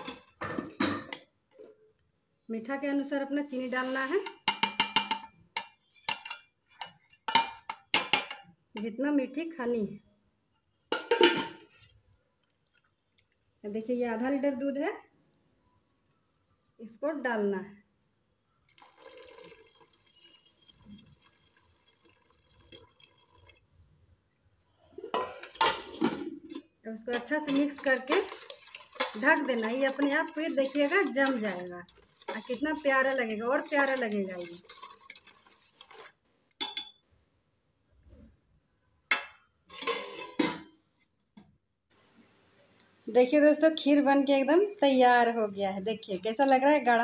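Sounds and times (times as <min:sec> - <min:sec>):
spoon clinking against pot: 0:04.2 - 0:08.5, 0:25.1 - 0:37.0
milk pouring into a pot: 0:18.6 - 0:23.8.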